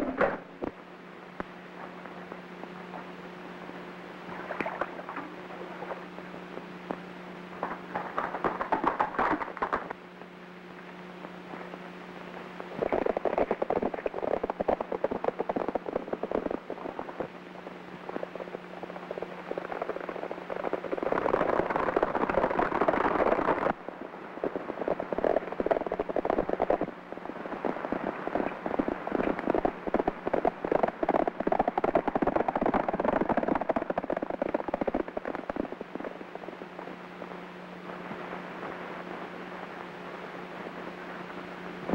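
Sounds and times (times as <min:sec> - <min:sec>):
horses galloping: 0:07.6 - 0:10.0, 0:12.8 - 0:17.3, 0:18.1 - 0:23.8, 0:24.7 - 0:36.7.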